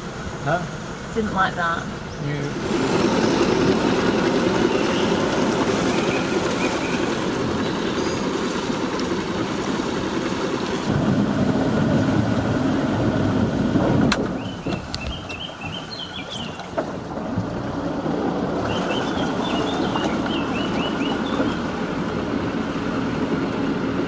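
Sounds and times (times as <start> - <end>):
boat engine running: 0.0 - 24.0
birds chirping: 3.3 - 8.8, 14.3 - 16.8, 18.6 - 22.0.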